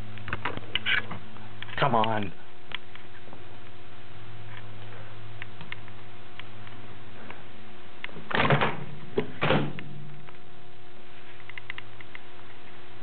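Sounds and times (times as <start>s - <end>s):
low hum: 0.0s - 13.0s
loud bumps: 8.2s - 10.3s.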